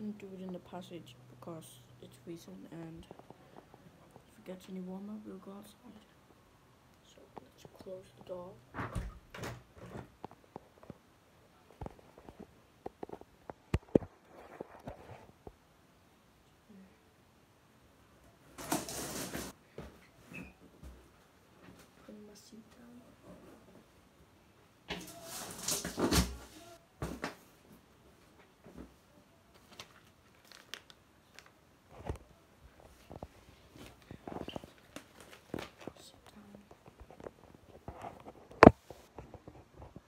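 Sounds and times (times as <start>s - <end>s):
rustling handling noise: 25.0s - 40.0s.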